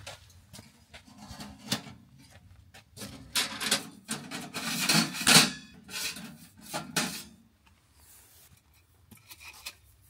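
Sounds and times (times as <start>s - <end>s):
metal pipes scraping: 3.0s - 7.4s.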